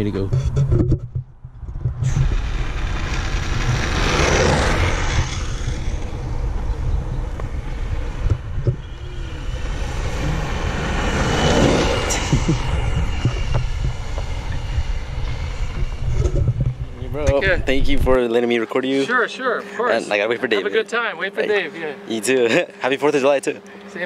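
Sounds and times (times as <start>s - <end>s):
wind rumble: 0.0s - 18.2s.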